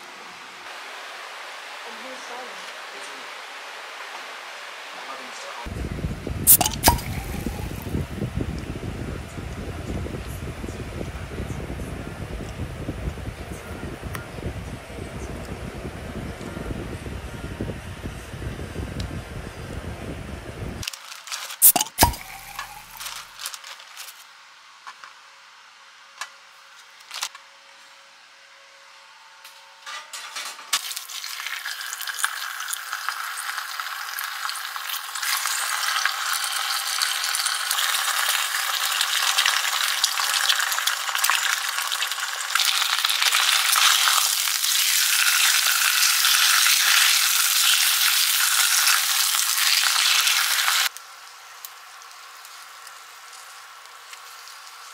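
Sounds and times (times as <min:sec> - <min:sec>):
ham and eggs sizzling in pan: 0:30.8 - 0:54.9.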